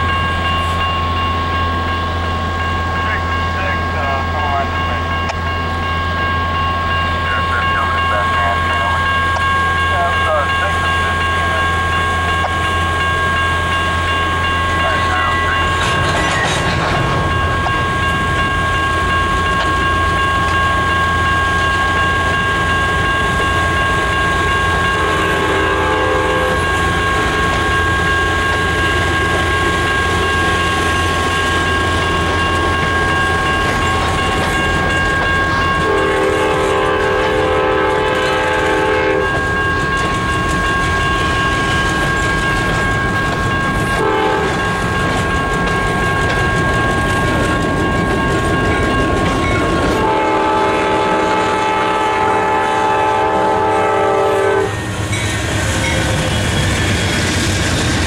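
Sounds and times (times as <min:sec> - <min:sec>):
freight cars rolling: 0:14.7 - 0:20.6
locomotive horn: 0:25.0 - 0:26.7, 0:35.8 - 0:39.4, 0:43.9 - 0:44.6, 0:49.9 - 0:54.9.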